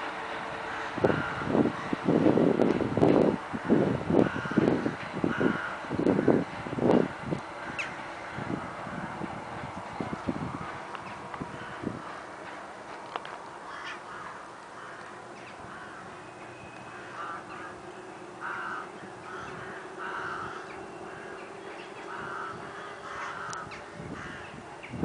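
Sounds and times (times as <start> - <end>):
crows cawing: 0.7 - 2.0, 3.5 - 6.5, 7.6 - 8.6, 11.4 - 12.6, 13.6 - 16.3, 16.9 - 24.6.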